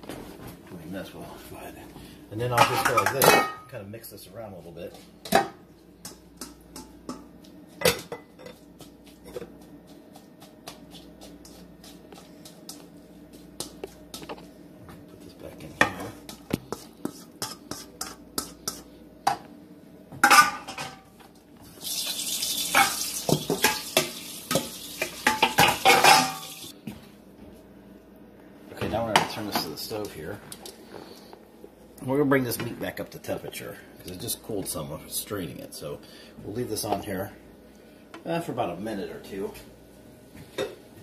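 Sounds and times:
utensils clinking and scraping pots: 2.4 - 3.8, 21.8 - 26.7
meat sizzling in a skillet: 21.8 - 26.7.

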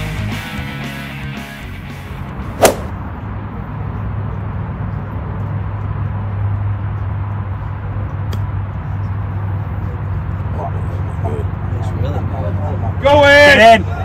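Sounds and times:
sharp loud knock: 2.6 - 2.9
golf club chipping ball: 2.6 - 3.0.

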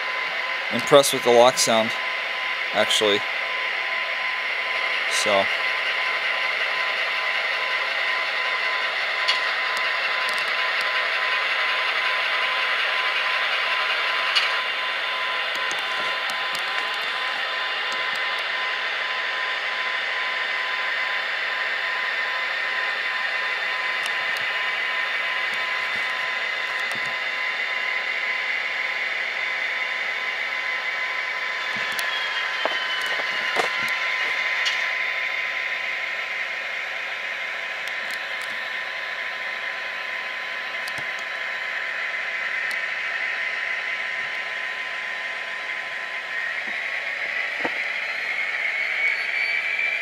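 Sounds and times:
diesel engine drone from speakers: 0.0 - 50.0.

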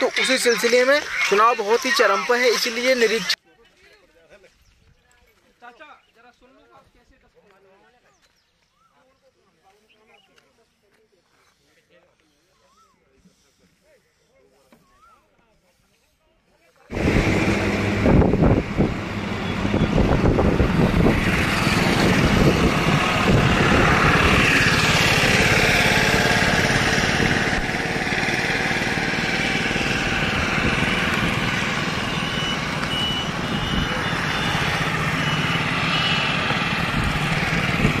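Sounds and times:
vehicle engine rumbling: 16.9 - 38.0
short high beeps: 32.0 - 36.3.

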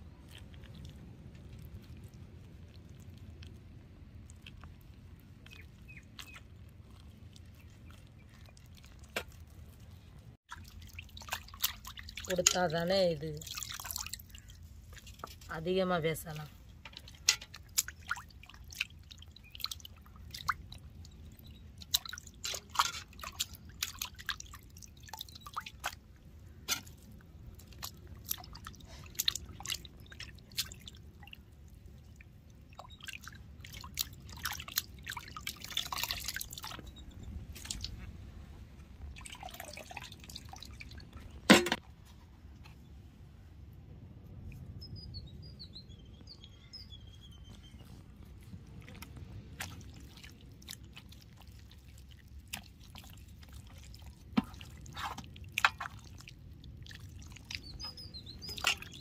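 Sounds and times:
water dripping and splashing: 0.0 - 41.8, 47.9 - 59.0
food clattering in water: 10.5 - 15.5, 16.2 - 20.7, 21.8 - 27.0, 39.2 - 41.8, 52.4 - 59.0.

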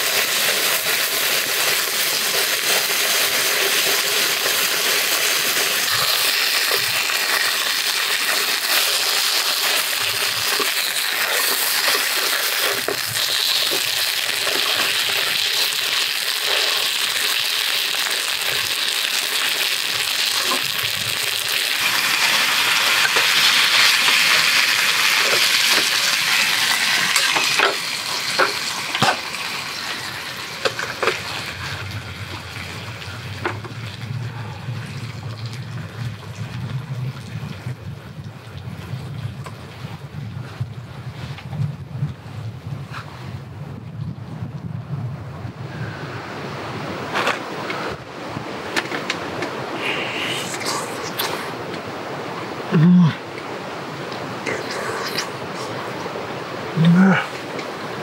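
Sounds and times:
meat sizzling in a frying pan: 0.0 - 31.6.

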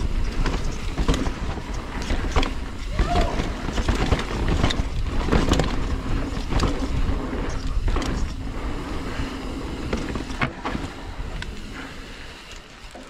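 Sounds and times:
bike knocks and rattles: 0.0 - 11.8
bike tyres rumbling on dirt: 0.0 - 13.0.

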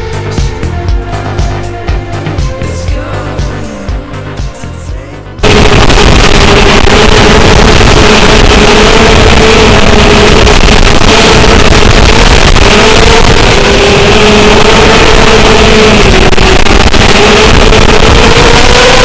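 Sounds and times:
electric motors and propellers whining: 5.4 - 19.0.

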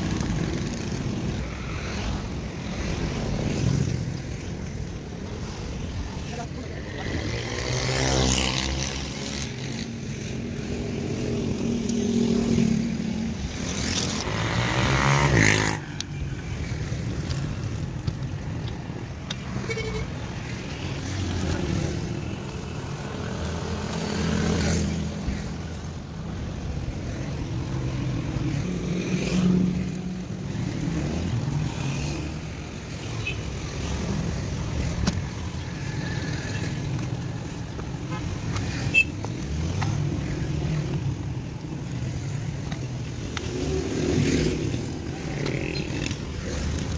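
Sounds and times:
road traffic rumble: 0.0 - 46.9.

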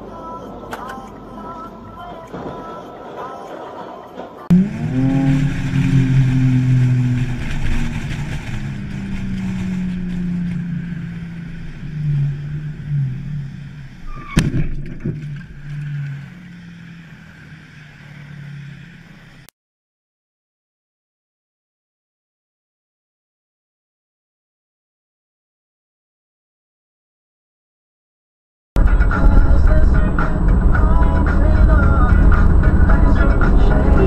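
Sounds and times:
vehicle engine droning: 0.0 - 19.5, 28.8 - 34.0.

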